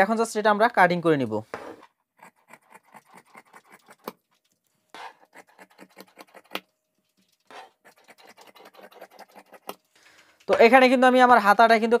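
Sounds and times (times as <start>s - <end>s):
scissors snipping fabric: 5.0s - 6.6s, 7.5s - 9.8s.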